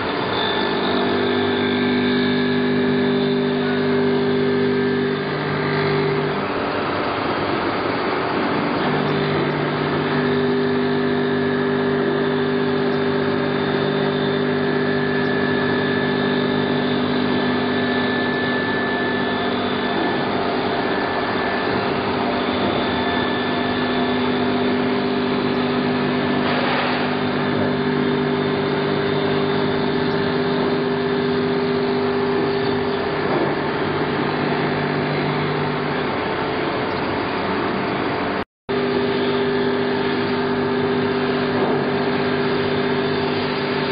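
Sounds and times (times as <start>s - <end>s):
knife blade grinder running: 0.0s - 36.6s, 38.7s - 43.9s.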